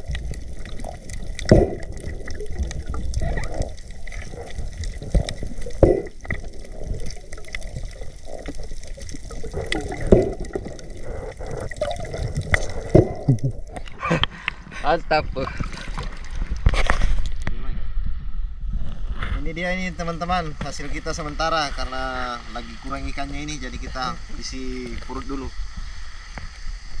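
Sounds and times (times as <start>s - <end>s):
water splashes: 0.0s - 17.4s
water sloshing and gurgling: 0.0s - 27.0s.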